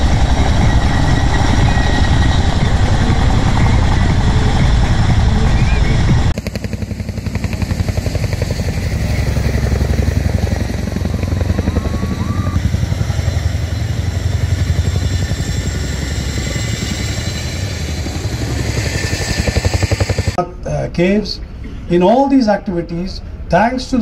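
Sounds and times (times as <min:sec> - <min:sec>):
helicopter rotor beating: 0:00.0 - 0:20.4.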